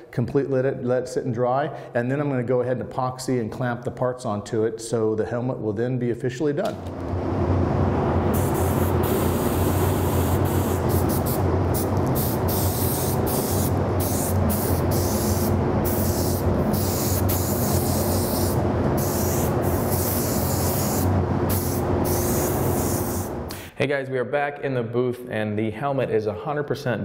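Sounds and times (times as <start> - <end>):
exhaust fan hum: 6.6 - 23.8
spray gun hissing: 8.2 - 23.5.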